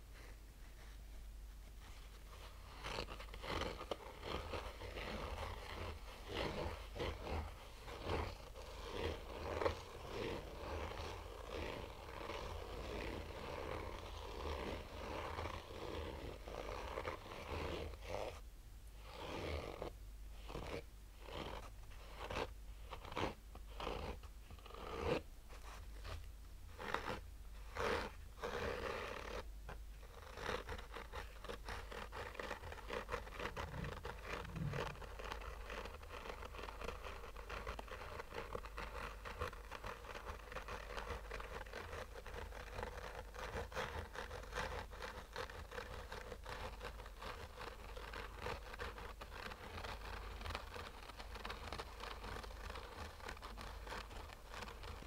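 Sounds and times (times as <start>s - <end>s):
fingernails scratching hard case: 30.0s - 55.0s.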